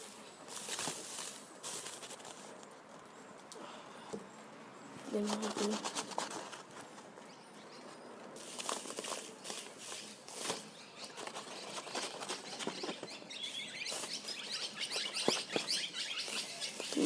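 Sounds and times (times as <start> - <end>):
powder and paper rustling: 0.0 - 2.6, 5.1 - 7.2, 8.4 - 17.0.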